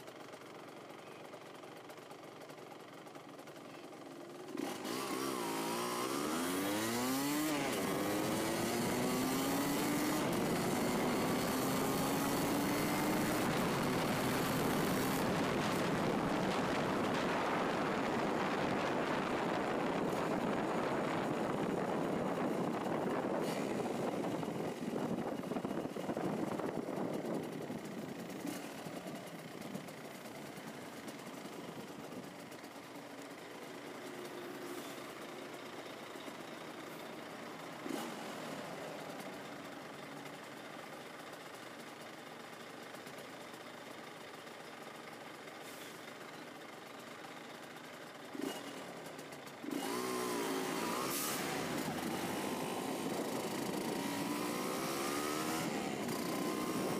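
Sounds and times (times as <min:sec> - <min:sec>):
two-stroke engine idling and revving: 0:00.0 - 0:56.9
wind noise on microphone: 0:13.4 - 0:28.1.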